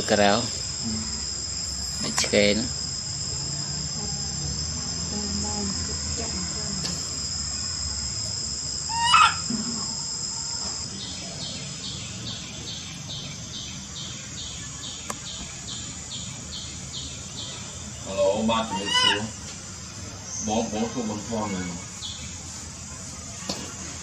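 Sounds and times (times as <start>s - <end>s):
insects buzzing drone: 0.0s - 24.0s
pulsed insect chirping: 0.0s - 24.0s.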